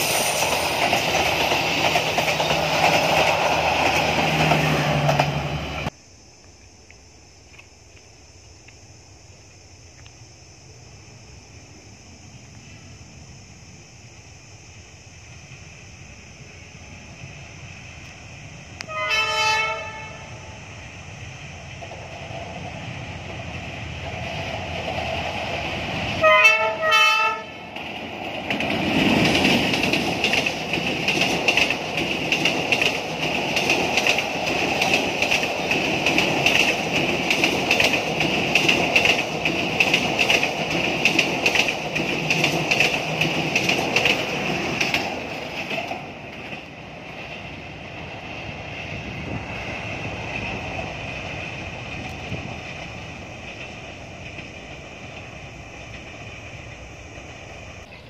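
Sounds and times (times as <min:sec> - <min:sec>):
train wheels clickety-clack: 0:00.0 - 0:05.9, 0:21.4 - 0:57.9
locomotive horn blasts: 0:18.8 - 0:20.4, 0:26.2 - 0:27.6.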